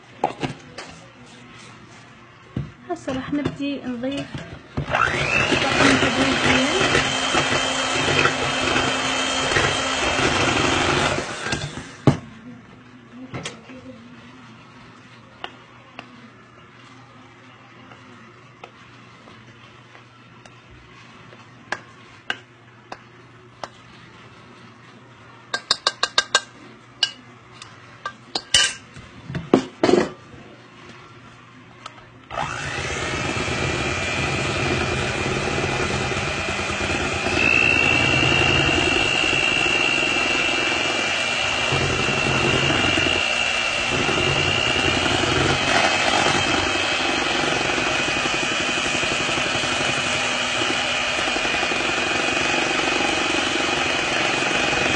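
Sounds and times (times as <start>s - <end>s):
electric stand mixer running: 4.8s - 12.2s, 32.3s - 54.9s.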